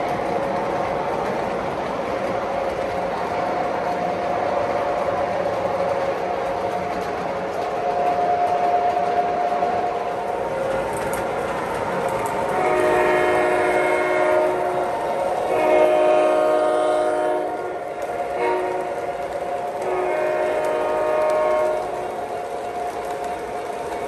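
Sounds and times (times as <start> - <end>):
model train running noise: 0.0 - 24.0
model train horn blasts: 12.5 - 14.9, 15.5 - 17.8, 18.4 - 18.9, 19.8 - 22.2.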